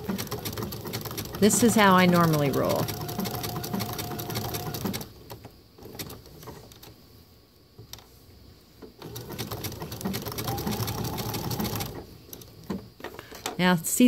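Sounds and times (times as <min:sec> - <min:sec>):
sewing machine clattering: 0:00.0 - 0:06.9, 0:09.0 - 0:12.8.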